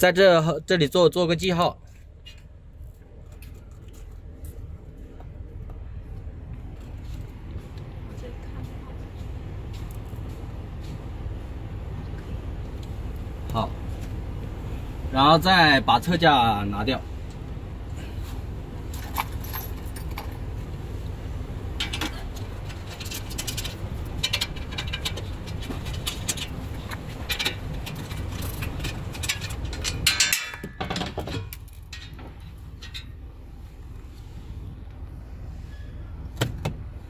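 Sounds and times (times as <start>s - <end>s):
low rumble: 17.3s - 30.2s
metallic clinks and scrapes: 18.9s - 20.5s, 21.8s - 33.4s
metal panel clattering: 21.7s - 33.2s.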